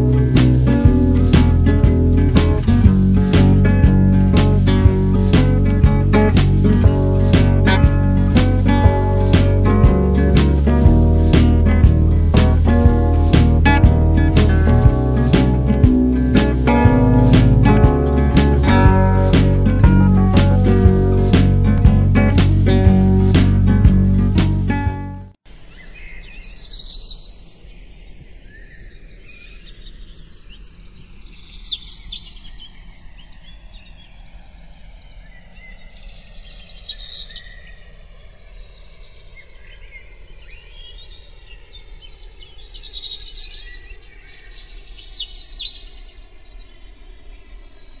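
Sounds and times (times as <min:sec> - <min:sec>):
faint outdoor background: 0:00.0 - 0:48.0
bird chirping: 0:25.5 - 0:48.0.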